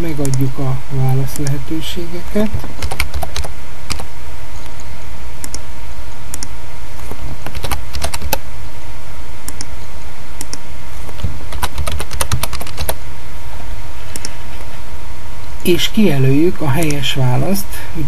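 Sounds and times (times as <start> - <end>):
steady low hum: 0.0 - 18.0
computer keyboard typing: 2.4 - 4.1, 7.4 - 8.4, 10.4 - 13.0.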